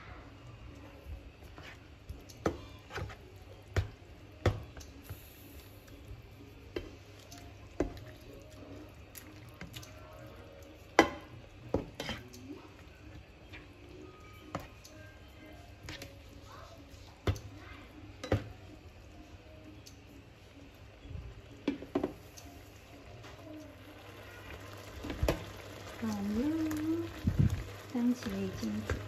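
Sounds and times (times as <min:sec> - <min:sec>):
spatula scraping frying pan: 0:11.8 - 0:12.4.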